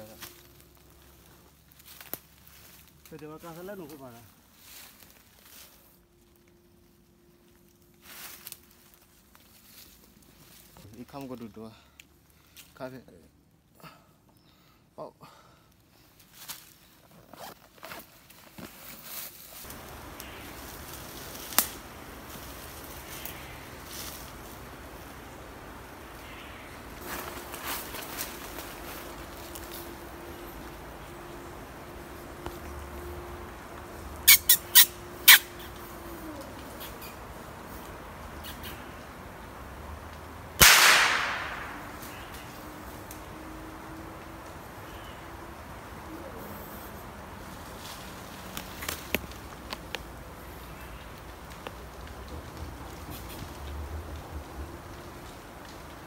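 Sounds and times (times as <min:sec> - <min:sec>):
footsteps through dry leaves: 0:00.0 - 0:11.2, 0:16.2 - 0:25.6, 0:26.2 - 0:31.1, 0:47.4 - 0:53.7
sharp twig snap: 0:21.4 - 0:21.9, 0:40.6 - 0:42.5
high sharp chirps: 0:34.2 - 0:35.5
rifle shot with echo: 0:40.6 - 0:42.0.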